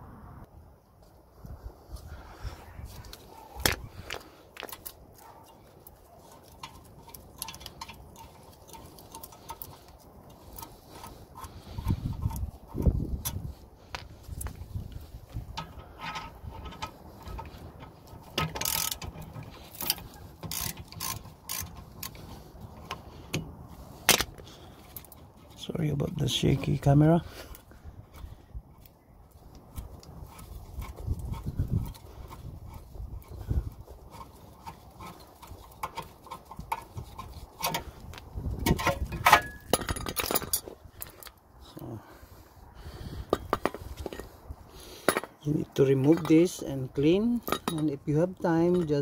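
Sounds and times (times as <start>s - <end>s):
metal brake parts clanking: 3.6s - 27.4s, 30.4s - 41.4s, 45.0s - 49.0s
socket wrench clicking on metal: 18.3s - 22.2s.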